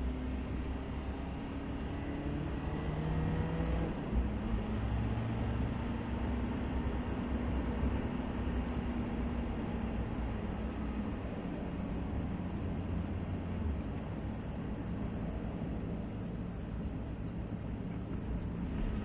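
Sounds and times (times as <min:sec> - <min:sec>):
car engine accelerating: 0:00.0 - 0:19.0
tyre road noise: 0:00.0 - 0:19.0.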